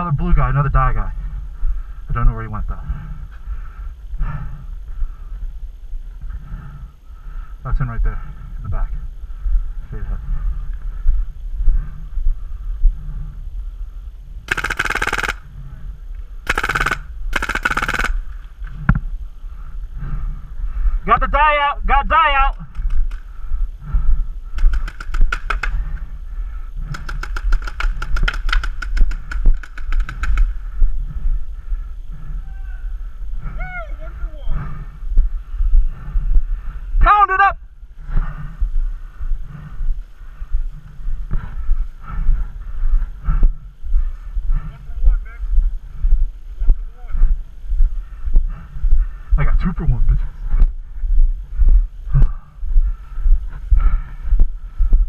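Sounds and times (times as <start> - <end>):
footsteps on field: 8.0 - 55.0
paintball marker firing rapid shots: 14.5 - 15.5, 16.4 - 18.3, 22.6 - 23.3, 24.6 - 25.9, 26.9 - 30.6.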